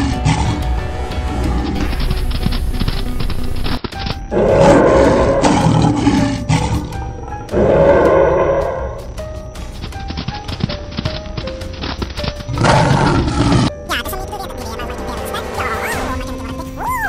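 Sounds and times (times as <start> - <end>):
animal roar: 0.0 - 2.1, 4.3 - 9.1, 12.5 - 13.7
background music: 0.0 - 17.0.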